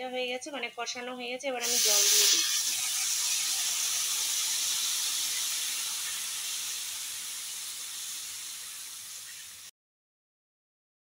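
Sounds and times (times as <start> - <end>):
food sizzling with steady hiss: 0.5 - 9.7
water poured into hot pan: 1.6 - 9.7.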